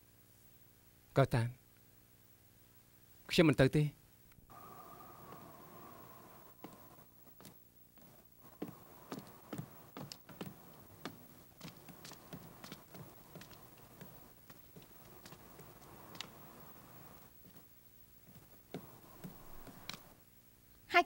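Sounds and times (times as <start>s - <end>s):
footsteps on wooden floor: 6.5s - 20.1s.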